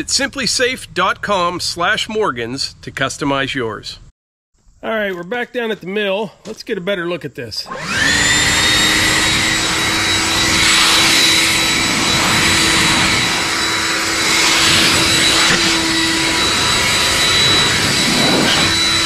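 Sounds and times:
leaf blower rushing and whining: 0:07.7 - 0:19.0.

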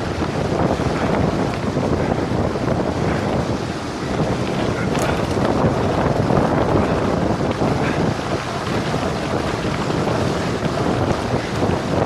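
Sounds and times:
wind roaring on microphone: 0:00.0 - 0:12.0.

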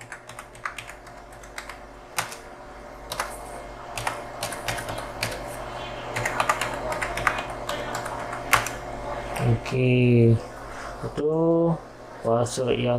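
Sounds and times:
keyboard typing clicks: 0:00.0 - 0:02.4, 0:03.1 - 0:03.4, 0:04.0 - 0:05.4, 0:06.2 - 0:08.8.

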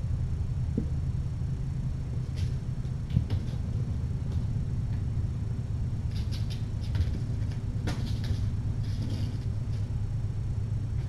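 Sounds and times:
low background hum: 0:00.0 - 0:11.0
kittens scampering and scratching: 0:02.2 - 0:05.1, 0:06.0 - 0:10.1.

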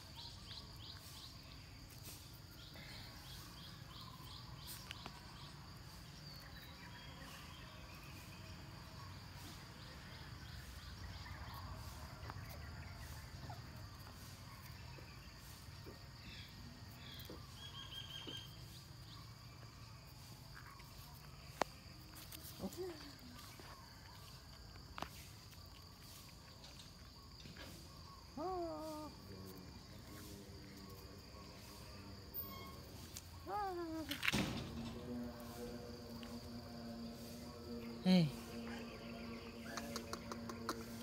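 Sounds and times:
bird chirps: 0:00.0 - 0:19.9, 0:37.8 - 0:41.0
high-pitched insect drone: 0:26.0 - 0:41.0.

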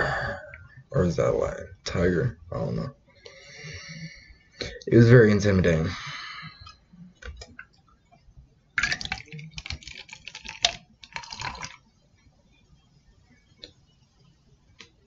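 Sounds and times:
fizzy drink pouring into glass: 0:08.8 - 0:11.8.

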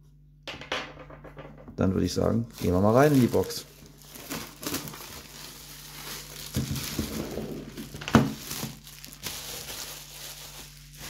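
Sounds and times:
plastic wrap crinkling: 0:02.2 - 0:11.0.

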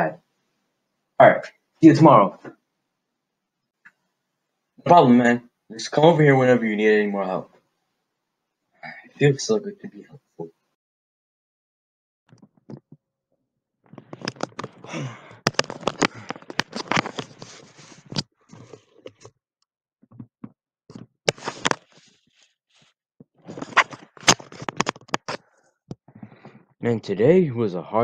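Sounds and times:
headphones handling noise: 0:13.9 - 0:19.3, 0:20.0 - 0:26.8.

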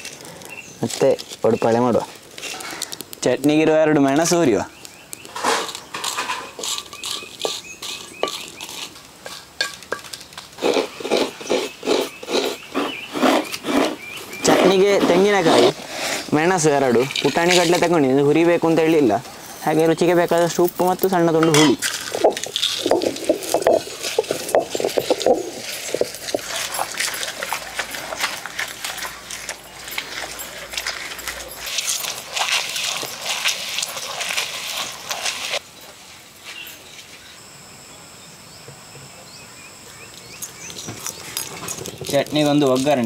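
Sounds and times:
metal spatula scraping clay pan: 0:05.4 - 0:17.9
hand scraping on grinding stone: 0:05.4 - 0:18.0, 0:21.4 - 0:35.6
coconut rasping on scraper: 0:06.0 - 0:09.5, 0:10.6 - 0:16.7.

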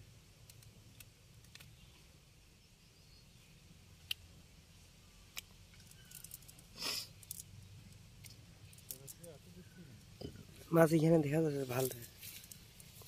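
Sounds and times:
faint sharp clicks: 0:00.4 - 0:01.8, 0:04.0 - 0:04.3.

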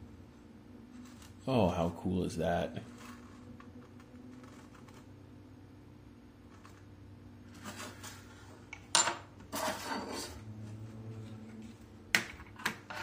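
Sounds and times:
low steady hum: 0:00.0 - 0:13.0
short scrape: 0:09.5 - 0:10.4.

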